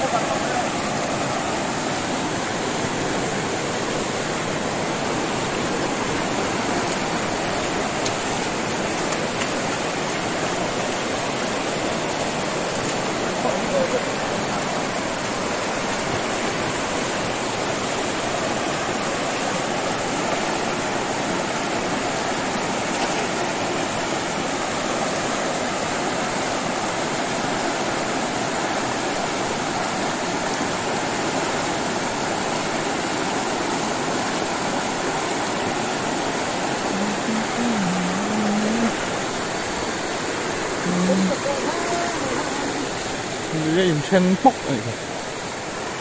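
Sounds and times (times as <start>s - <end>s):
river rushing over rocks: 0.0s - 46.0s.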